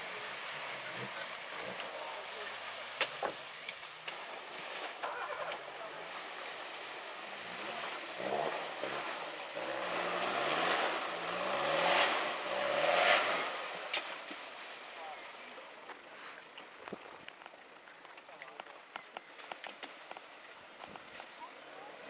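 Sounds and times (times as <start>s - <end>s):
tyres churning through mud: 0.0s - 22.0s
engine revving under load: 5.4s - 14.3s.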